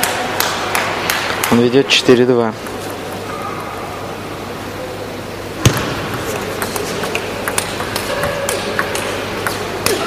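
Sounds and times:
table tennis ball clicking: 0:06.4 - 0:10.0.

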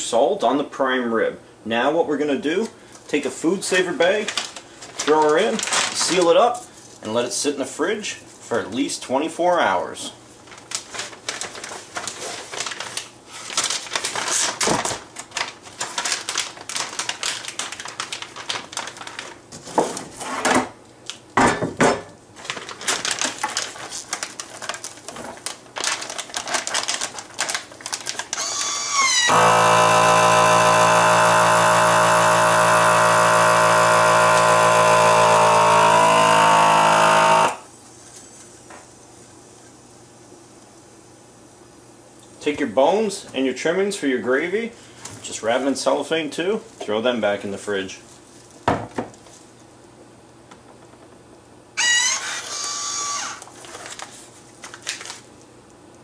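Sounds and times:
plastic bag crinkling: 0:03.7 - 0:07.0, 0:10.4 - 0:20.2, 0:22.3 - 0:35.1, 0:51.8 - 0:55.5
vacuum sealer pump running: 0:28.3 - 0:37.7, 0:51.8 - 0:53.5.

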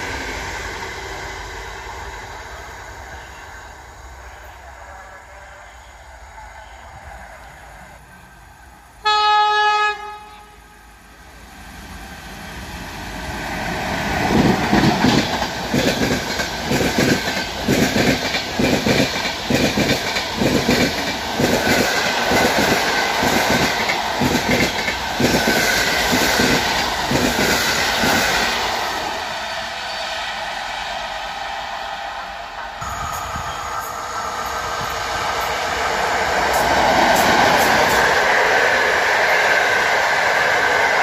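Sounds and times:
train passing rush: 0:00.0 - 0:41.0
train horn blast: 0:09.0 - 0:11.0
train wheels clickety-clack: 0:14.0 - 0:28.7, 0:32.6 - 0:41.0.

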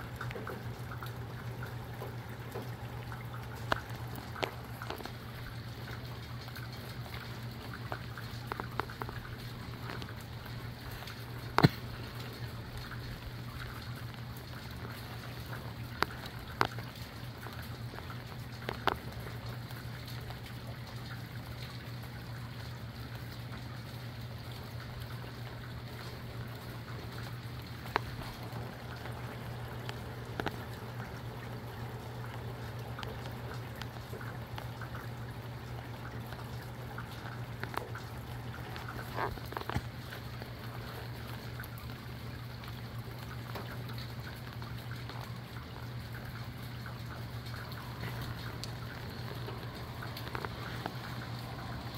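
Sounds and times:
sharp drip clicks: 0:00.0 - 0:51.9
steady rainfall: 0:00.0 - 0:51.9
low hum: 0:45.6 - 0:51.9.

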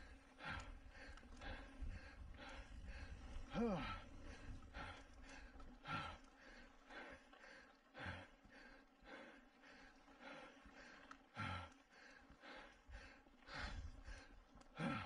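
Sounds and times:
person breathing hard: 0:00.0 - 0:15.0.

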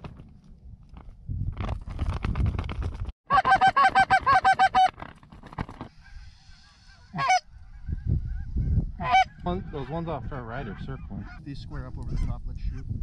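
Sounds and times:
goose call clucks: 0:03.3 - 0:05.0, 0:05.9 - 0:10.0
goose honks: 0:06.8 - 0:07.8, 0:09.0 - 0:10.0.

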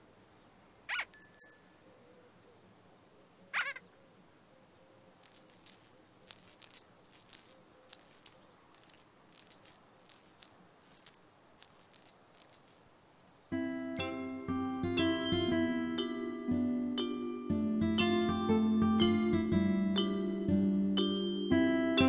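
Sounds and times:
shaken rattle: 0:05.2 - 0:13.5.

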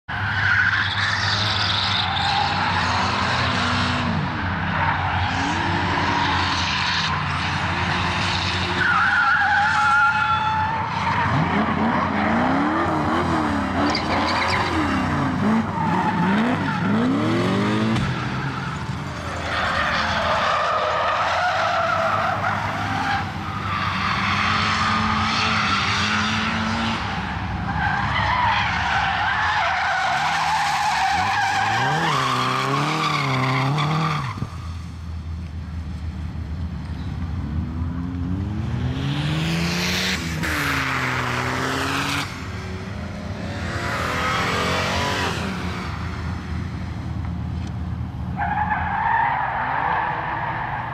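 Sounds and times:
tyres skidding and squealing: 0:00.0 - 0:50.9
car engine revving: 0:11.2 - 0:18.4, 0:37.4 - 0:46.3.

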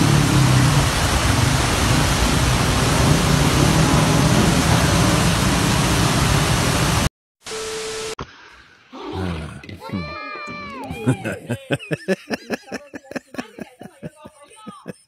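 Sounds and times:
water spraying from burst pipe: 0:00.0 - 0:08.2.

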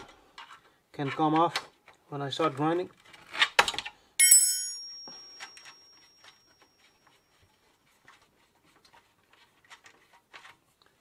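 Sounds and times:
metal clink on bicycle frame: 0:04.2 - 0:06.4.

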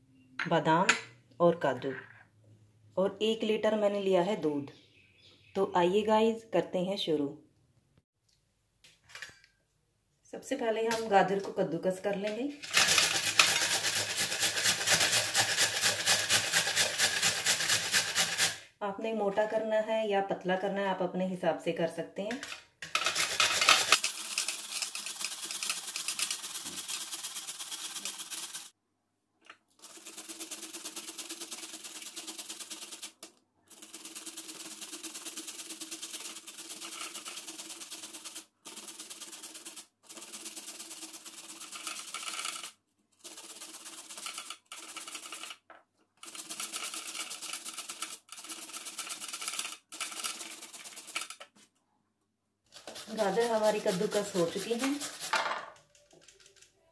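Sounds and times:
carrots grated on metal grater: 0:12.6 - 0:18.6, 0:22.8 - 0:28.7, 0:29.8 - 0:45.6, 0:46.2 - 0:51.4, 0:52.8 - 0:55.5.

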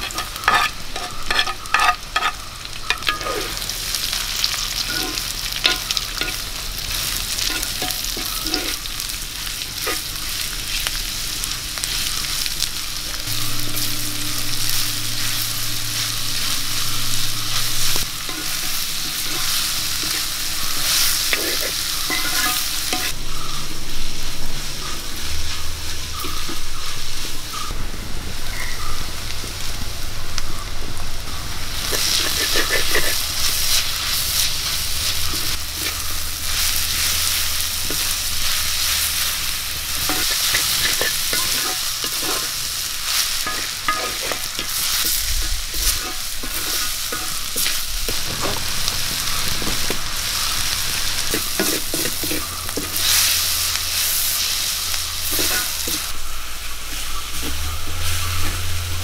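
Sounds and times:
spatula scraping pan: 0:00.0 - 0:03.6, 0:04.5 - 0:08.9, 0:13.2 - 0:23.2, 0:31.9 - 0:56.2
onions sizzling in oil: 0:00.0 - 0:59.0.

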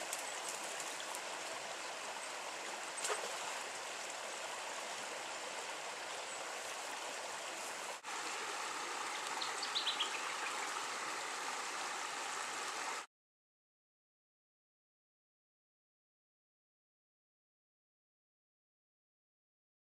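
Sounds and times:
creek water running over rocks: 0:00.0 - 0:13.1.

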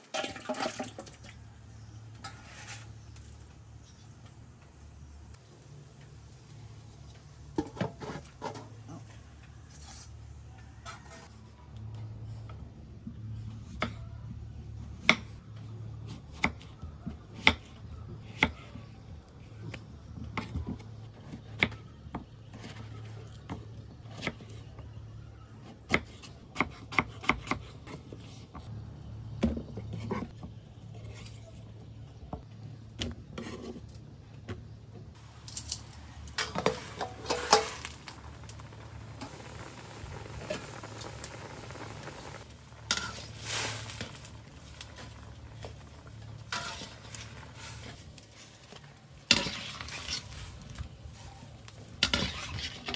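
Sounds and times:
metal basin clanking: 0:00.0 - 0:01.4, 0:36.3 - 0:38.1.

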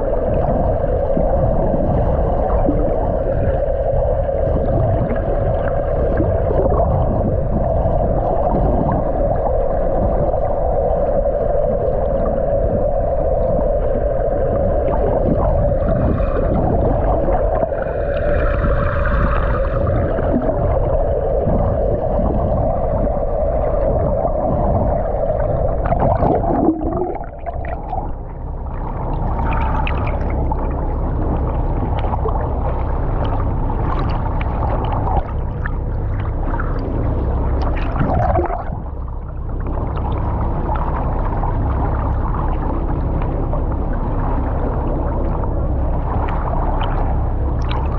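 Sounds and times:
muffled underwater water rushing: 0:00.0 - 0:47.9
water splashing and lapping: 0:11.8 - 0:47.9.

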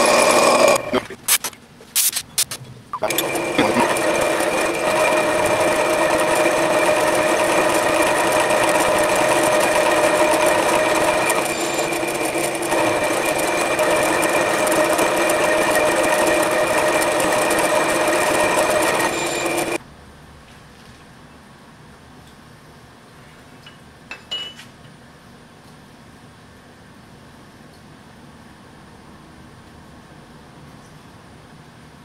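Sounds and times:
milling machine cutting metal: 0:00.0 - 0:01.0, 0:03.0 - 0:19.8.

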